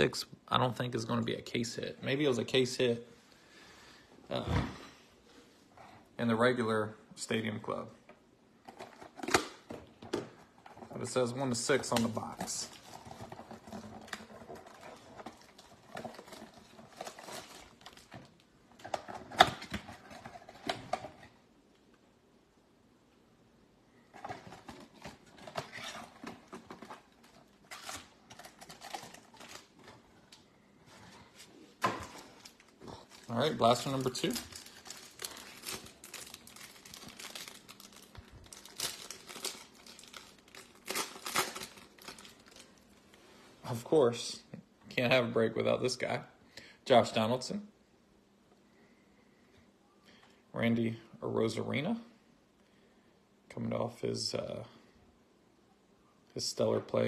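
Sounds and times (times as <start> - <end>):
cards and cardboard box rustling: 8.7 - 21.4, 24.1 - 30.0, 31.2 - 42.7
plastic wrapper crinkling: 10.8 - 21.3, 24.2 - 30.4, 32.0 - 43.0.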